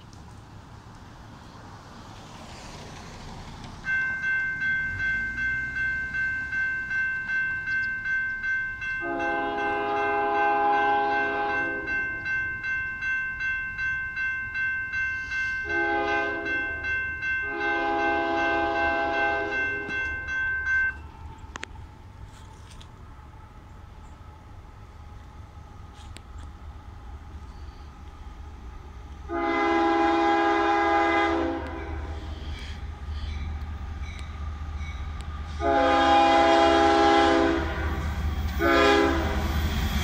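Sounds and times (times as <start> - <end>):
crossing warning bell dinging: 3.8 - 22.2, 29.2 - 40.0
locomotive horn blasts: 9.0 - 12.2, 15.6 - 21.0, 29.3 - 32.3, 35.5 - 39.6.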